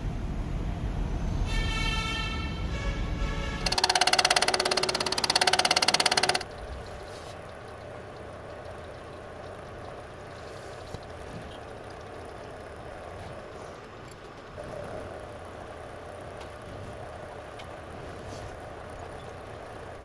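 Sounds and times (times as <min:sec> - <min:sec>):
loud fast pulsing: 0:03.6 - 0:06.8
milling machine running: 0:03.6 - 0:10.2.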